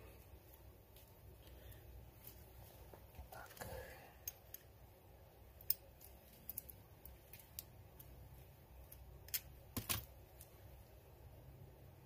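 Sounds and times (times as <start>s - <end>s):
small parts and tools clicking: 3.5s - 4.8s, 5.5s - 10.6s.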